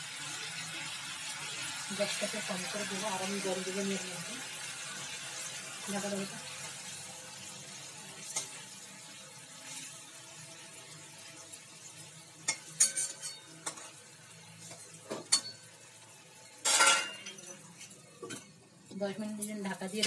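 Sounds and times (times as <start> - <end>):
faint sizzle: 0.0 - 20.0
spatula scraping a pan: 12.4 - 14.0.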